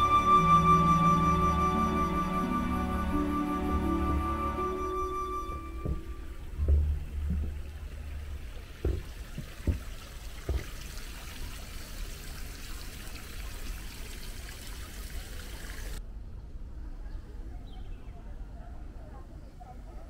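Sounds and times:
dull low thumps: 2.0 - 10.7
water splashing into pond: 5.5 - 16.0.

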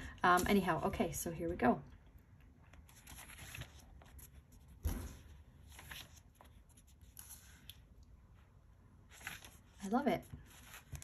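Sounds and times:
paper pages rustling: 2.7 - 8.0, 9.0 - 11.0
page flapping: 2.9 - 7.8, 9.1 - 9.8.

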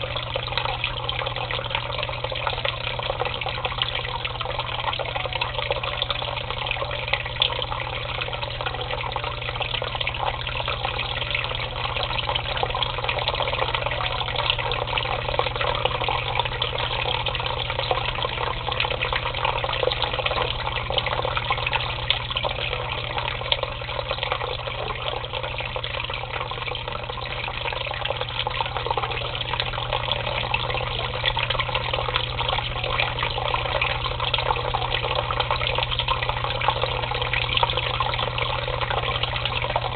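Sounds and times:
water pouring into a tub: 0.0 - 39.9.

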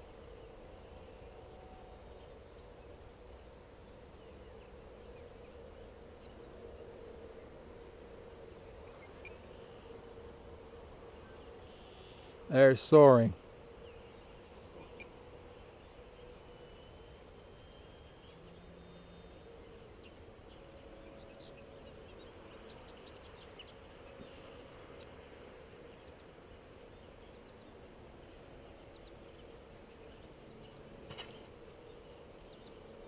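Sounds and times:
soft steady hum: 0.0 - 33.0
small tick: 4.6 - 6.4, 7.0 - 7.2, 7.8 - 8.0, 8.8 - 9.6, 10.2 - 12.4, 13.6 - 33.0
faint wildlife chirps: 8.6 - 10.0.

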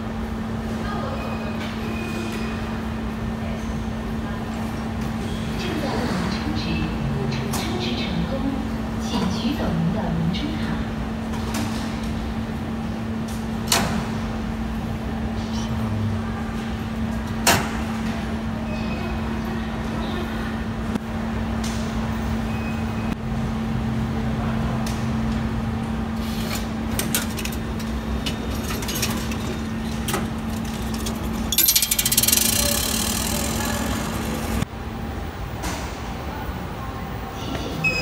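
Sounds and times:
scattered clicks and knocks: 26.9 - 34.0
loud rattling noise: 27.0 - 34.6.

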